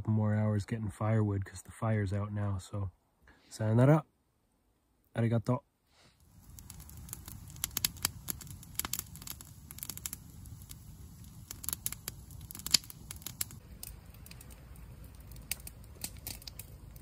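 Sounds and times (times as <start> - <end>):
campfire crackling and popping: 6.2 - 17.0.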